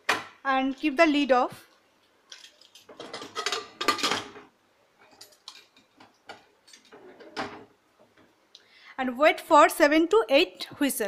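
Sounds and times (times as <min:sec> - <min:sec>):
metal lid clattering and scraping: 0:02.9 - 0:04.5.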